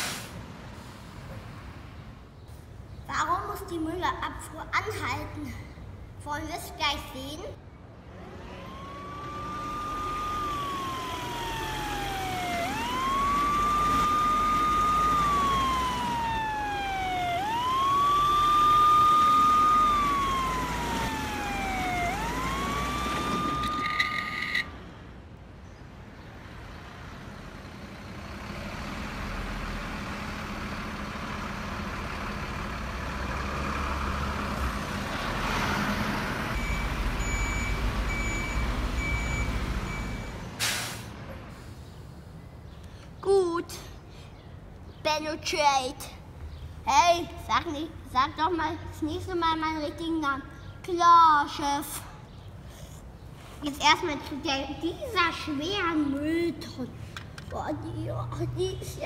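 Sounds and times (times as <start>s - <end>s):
toy ambulance siren wailing: 8.6s - 24.7s.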